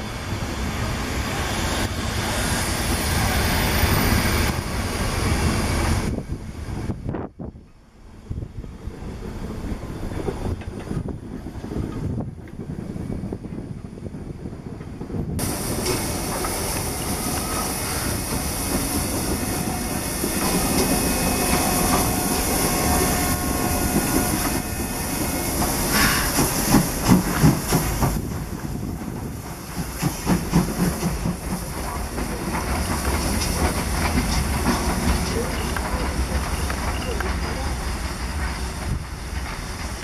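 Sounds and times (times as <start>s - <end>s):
passenger coaches rolling past: 0.0s - 40.0s
wheels clattering on rails: 14.8s - 40.0s
steam locomotive chuffs: 15.1s - 40.0s
steam hissing: 15.4s - 40.0s.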